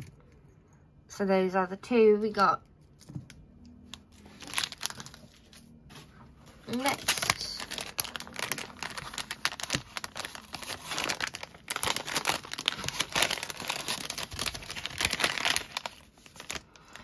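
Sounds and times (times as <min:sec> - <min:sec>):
plastic packet crinkling: 0:03.9 - 0:05.5, 0:06.6 - 0:17.0.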